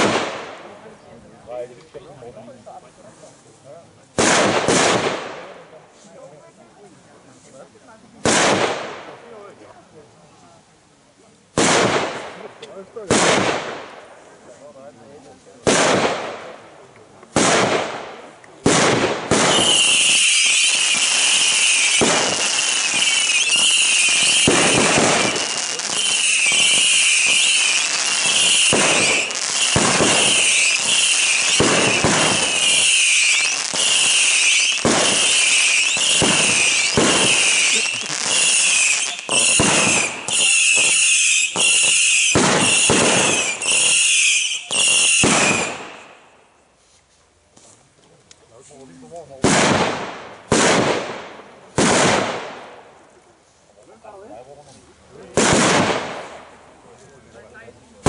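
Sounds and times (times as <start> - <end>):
firecracker bangs: 0.0 - 0.6, 4.2 - 5.6, 8.2 - 9.1, 11.6 - 14.0, 15.6 - 16.6, 17.3 - 46.3, 49.4 - 52.8, 55.3 - 56.6
firework hiss with whistle: 19.3 - 46.3.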